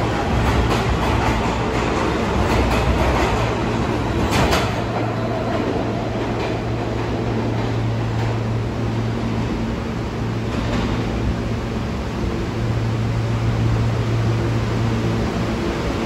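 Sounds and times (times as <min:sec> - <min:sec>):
train clicks: 0:00.0 - 0:08.6, 0:10.4 - 0:11.2
subway train hum and rumble: 0:00.0 - 0:16.0.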